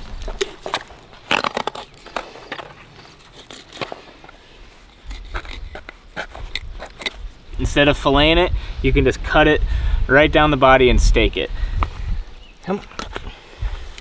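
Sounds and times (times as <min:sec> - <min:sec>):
knife crunching through cartilage: 0:00.0 - 0:07.4.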